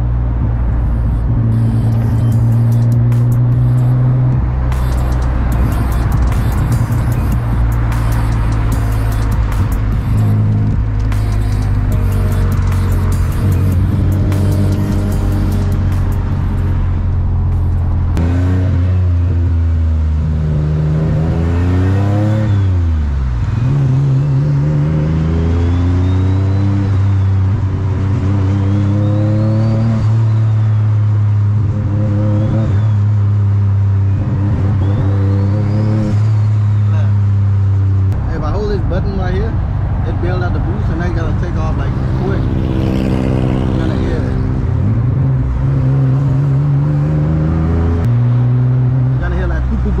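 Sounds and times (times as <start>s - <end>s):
car engine while driving: 0.0s - 50.0s
turbo whistle: 25.5s - 27.3s.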